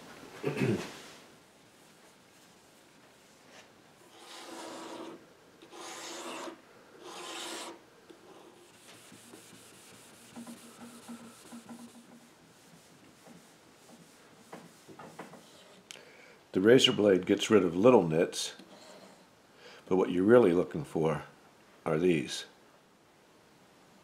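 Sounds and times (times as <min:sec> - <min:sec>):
steel wool scrubbing wood: 0:03.1 - 0:15.7.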